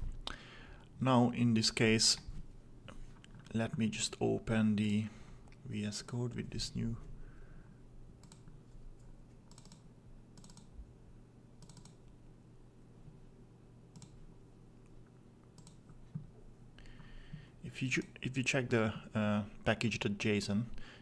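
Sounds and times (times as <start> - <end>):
low steady hum: 0.0 - 21.0
computer mouse clicks: 8.2 - 10.8, 11.6 - 12.2, 13.9 - 14.2, 15.4 - 15.9.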